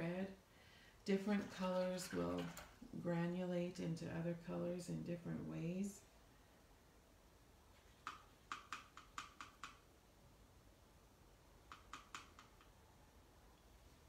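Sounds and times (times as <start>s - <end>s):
paintbrush tapping plastic palette: 7.9s - 9.8s, 11.7s - 12.8s.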